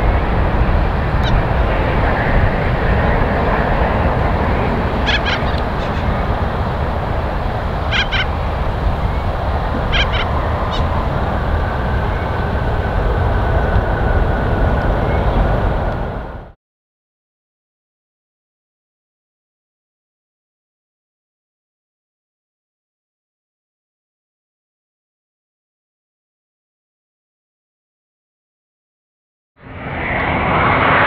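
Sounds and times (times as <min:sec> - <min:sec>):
jet engines roaring: 0:00.0 - 0:16.6, 0:29.6 - 0:31.0
short bird calls: 0:05.1 - 0:06.1, 0:07.9 - 0:08.3, 0:09.9 - 0:10.9.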